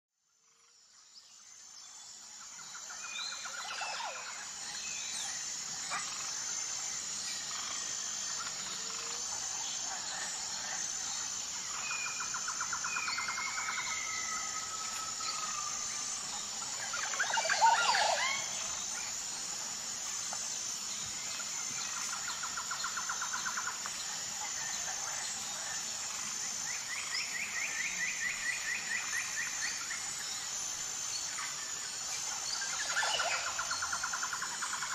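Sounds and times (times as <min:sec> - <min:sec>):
steady high-pitched whine: 0:00.2 - 0:34.9
songbirds trilling: 0:02.6 - 0:19.6.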